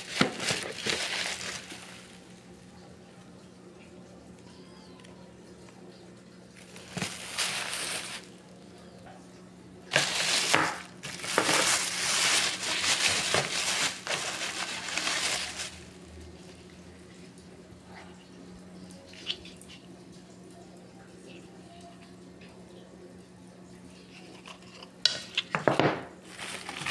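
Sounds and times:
plastic bags rustling: 0.0 - 2.6, 6.5 - 8.8, 9.9 - 16.7, 26.2 - 26.9.

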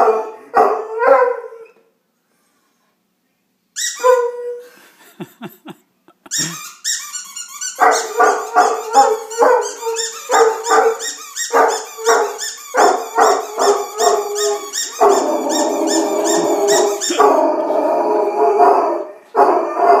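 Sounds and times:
squeaky toy squeaking: 3.8 - 4.2, 6.3 - 17.2
dog yelping barks: 7.7 - 17.4
dog howling: 13.2 - 20.0.

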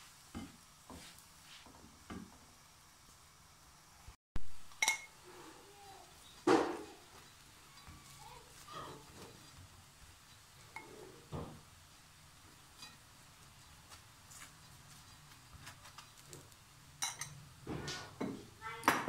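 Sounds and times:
spatula tapping frying pan: 0.3 - 2.5
metal spoon clinking on pan: 4.7 - 5.1, 12.8 - 13.0, 17.0 - 17.4.

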